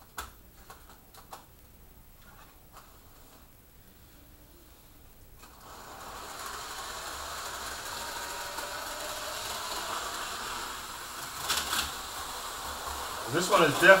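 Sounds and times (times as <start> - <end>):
model train motor whirring: 5.4 - 14.0.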